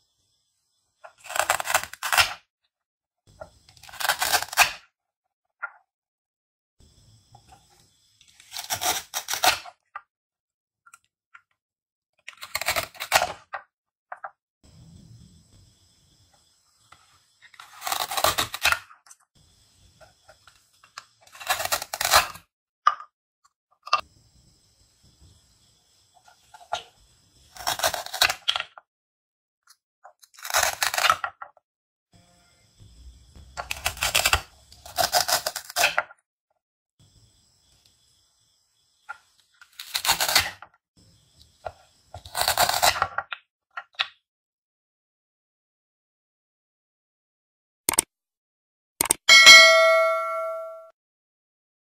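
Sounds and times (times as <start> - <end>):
velcro ripping apart: 1.2 - 2.4, 3.8 - 4.8, 8.4 - 9.7, 12.4 - 13.3, 30.4 - 31.2, 39.7 - 40.6.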